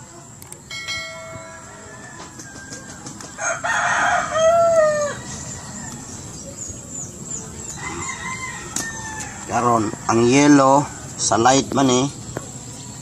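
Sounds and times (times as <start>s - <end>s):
rooster crowing: 1.4s - 6.0s, 7.8s - 11.1s.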